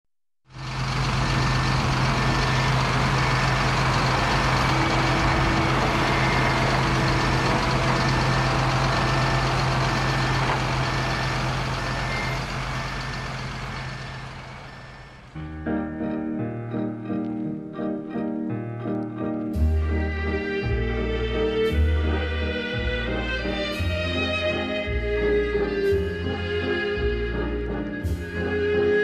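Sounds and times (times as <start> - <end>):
backhoe engine running: 0.5 - 15.4, 18.8 - 29.0
reversing alarm beeping: 0.6 - 15.4.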